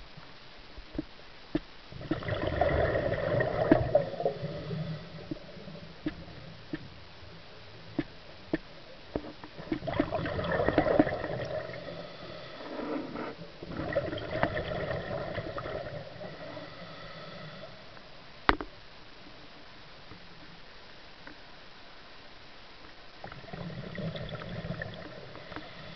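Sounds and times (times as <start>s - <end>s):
underwater exhaled bubbles gurgling: 1.9s - 17.7s, 23.2s - 25.9s.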